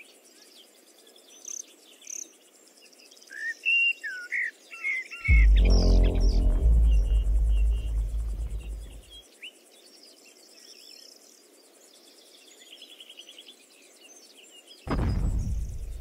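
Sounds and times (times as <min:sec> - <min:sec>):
low rumble: 0:05.3 - 0:09.1, 0:14.9 - 0:16.0.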